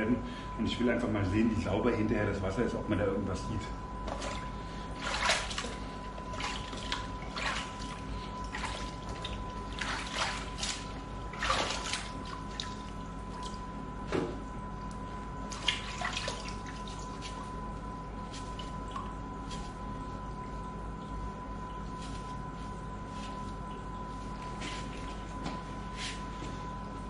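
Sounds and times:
rope swishing in water: 0:04.1 - 0:13.6
water trickling and dripping: 0:23.4 - 0:25.2.

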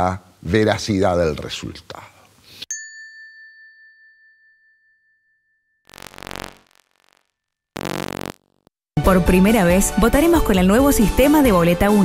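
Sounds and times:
clear chime: 0:02.7 - 0:05.8
buzzy sound effect bursts: 0:05.9 - 0:08.7.

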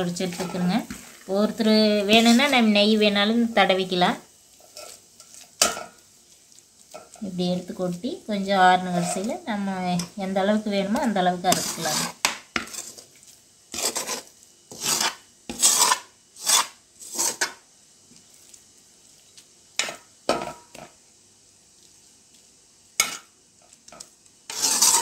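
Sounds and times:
metal spoon scraping metal: 0:00.1 - 0:00.8, 0:02.1 - 0:02.7, 0:08.9 - 0:09.3, 0:11.5 - 0:13.0, 0:13.7 - 0:17.5, 0:24.5 - 0:25.0.

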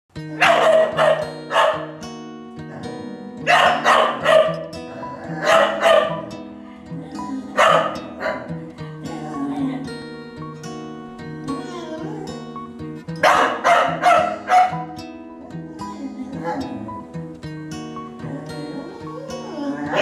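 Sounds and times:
background guitar music: 0:00.1 - 0:20.0
dogs barking fiercely: 0:00.4 - 0:02.0, 0:02.6 - 0:06.4, 0:07.6 - 0:08.6, 0:13.2 - 0:15.0.

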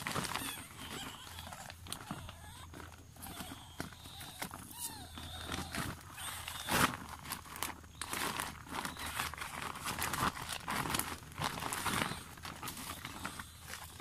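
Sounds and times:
rustling and crinkling: 0:00.0 - 0:14.0.

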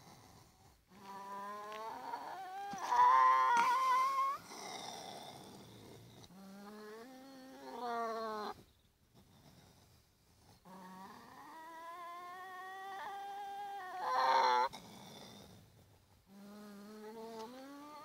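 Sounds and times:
raccoon dog whining: 0:01.0 - 0:04.4, 0:10.6 - 0:14.7.

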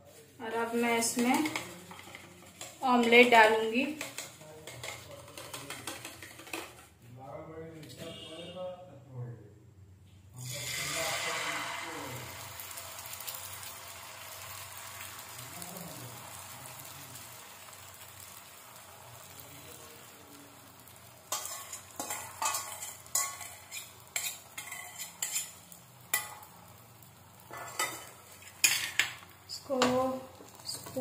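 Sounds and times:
batter sizzling in oil: 0:00.1 - 0:06.8, 0:10.4 - 0:31.0
spoon scraping and tapping pan: 0:01.0 - 0:06.9, 0:21.3 - 0:26.5, 0:27.4 - 0:31.0.

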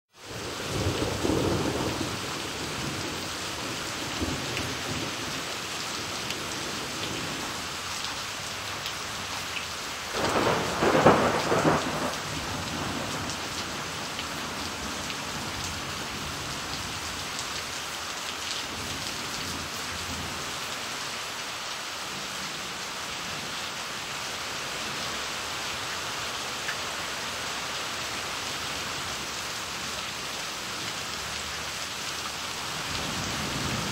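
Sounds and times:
rain on paving and leaves: 0:00.1 - 0:33.9
thunder rumbling: 0:00.4 - 0:05.3, 0:10.1 - 0:14.0.

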